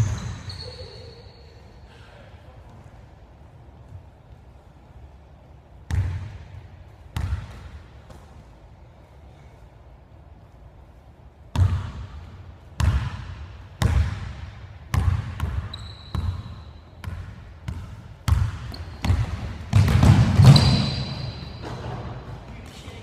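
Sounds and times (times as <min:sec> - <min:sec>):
sneaker squeak: 0:00.0 - 0:01.9, 0:15.4 - 0:17.0, 0:18.3 - 0:22.1
basketball bouncing on hardwood: 0:17.0 - 0:22.0.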